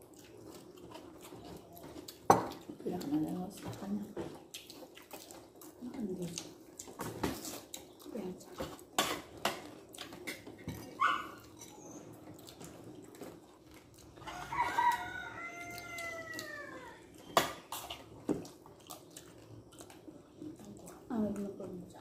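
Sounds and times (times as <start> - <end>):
quiet eating sounds: 0.0 - 22.0
rooster crowing: 14.2 - 17.1.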